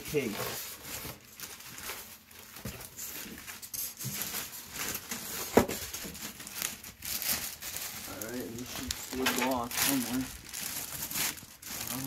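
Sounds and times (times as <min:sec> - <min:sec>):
plastic and foam rustling: 0:00.0 - 0:12.0.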